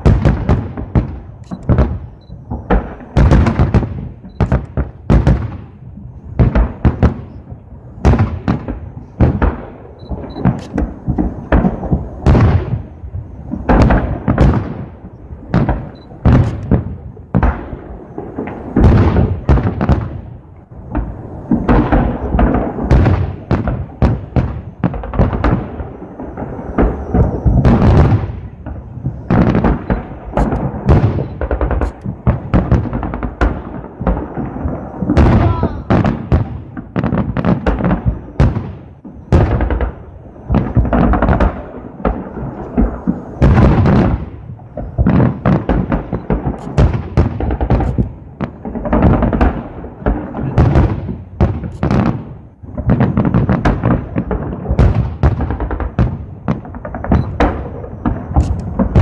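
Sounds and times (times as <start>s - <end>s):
fireworks shells bursting: 8.5s - 12.5s, 29.1s - 33.3s, 40.6s - 49.5s, 51.6s - 59.0s.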